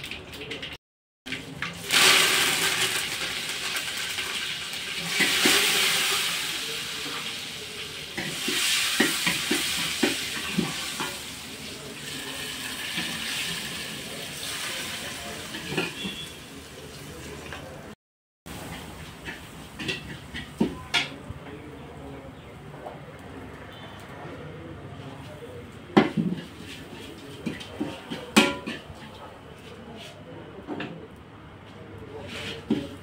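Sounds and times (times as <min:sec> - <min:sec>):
water sizzling in hot metal vessel: 0:01.6 - 0:16.6.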